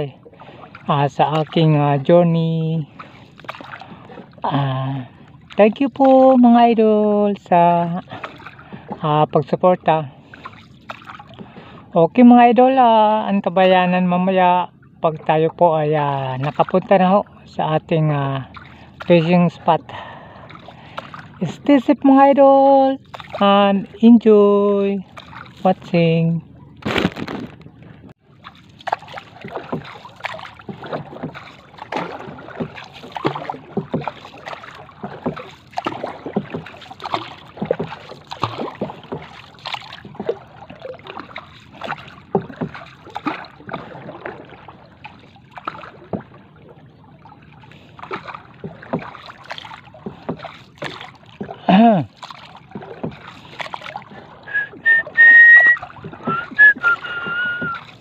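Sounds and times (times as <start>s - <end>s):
paddle splashing water: 0.0s - 58.0s
brief whistle: 54.5s - 57.8s.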